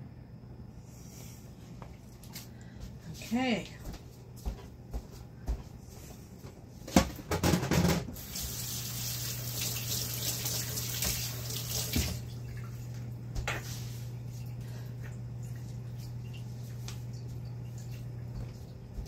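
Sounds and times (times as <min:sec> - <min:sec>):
knocks and clatter: 0:06.9 - 0:08.1
tap running into a sink: 0:09.2 - 0:12.2.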